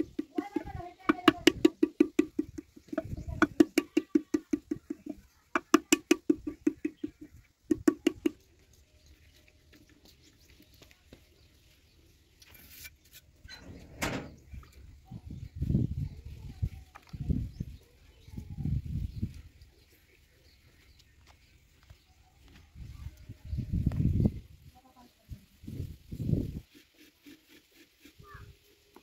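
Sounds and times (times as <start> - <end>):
paddle beating clay pot: 0.0 - 8.6
handling noise: 13.4 - 14.8.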